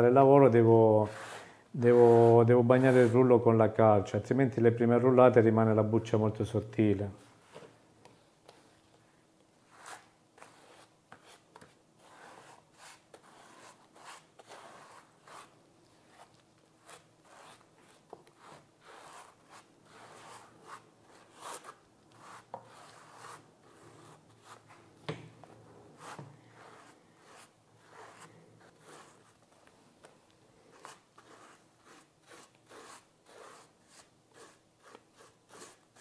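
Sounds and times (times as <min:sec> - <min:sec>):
trowel scraping plaster: 0:01.0 - 0:03.3, 0:09.7 - 0:11.4, 0:12.0 - 0:15.5, 0:16.1 - 0:24.6, 0:26.0 - 0:29.3, 0:30.7 - 0:36.0.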